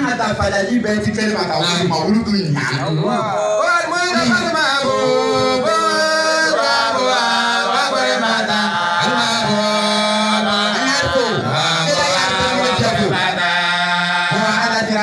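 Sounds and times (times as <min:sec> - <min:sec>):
man chanting into microphone: 0:03.0 - 0:06.6, 0:08.4 - 0:15.0.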